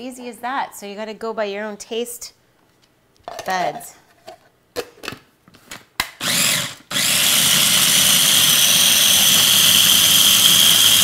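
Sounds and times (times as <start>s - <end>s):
food processor motor whining: 6.2s - 11.0s.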